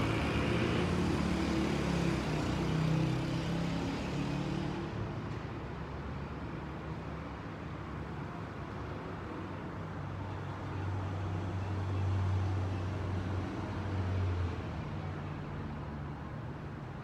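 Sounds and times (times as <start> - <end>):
passing vehicle engine hum: 0.0 - 5.2
traffic noise: 0.0 - 17.0.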